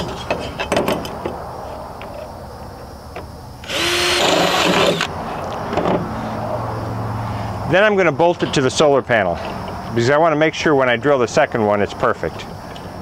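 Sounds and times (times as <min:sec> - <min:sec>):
cordless drill boring through metal: 0:03.6 - 0:05.1.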